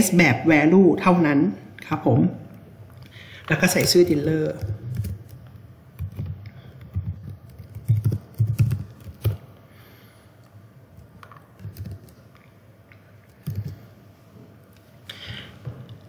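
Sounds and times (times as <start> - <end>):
keyboard typing: 3.7 - 9.4, 11.0 - 12.5, 13.2 - 13.9.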